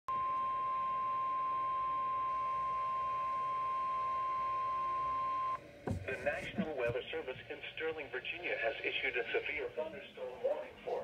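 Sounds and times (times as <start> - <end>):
weather radio alarm tone: 0.1 - 5.6
short low thump: 5.8 - 6.8.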